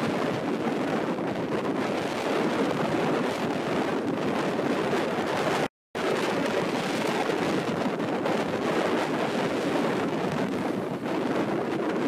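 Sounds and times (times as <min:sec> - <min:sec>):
wind rushing: 0:00.0 - 0:12.0.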